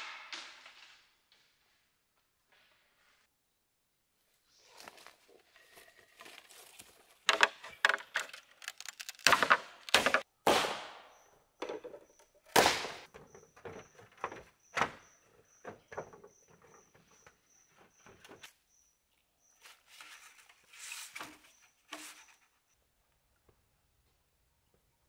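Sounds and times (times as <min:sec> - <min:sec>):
bamboo poles knocking: 0:07.2 - 0:10.7, 0:11.6 - 0:15.0.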